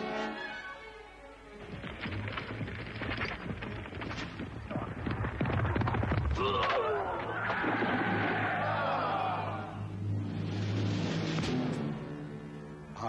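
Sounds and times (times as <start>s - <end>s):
rapid clattering: 1.6s - 6.4s
galloping hooves: 1.6s - 7.8s
crowd shouting: 6.6s - 9.9s.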